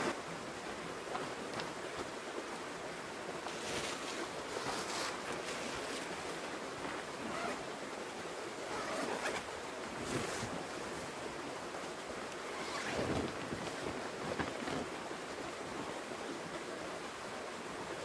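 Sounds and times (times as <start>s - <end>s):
tent fabric rustling: 3.4s - 7.6s, 8.6s - 11.2s, 12.4s - 15.0s.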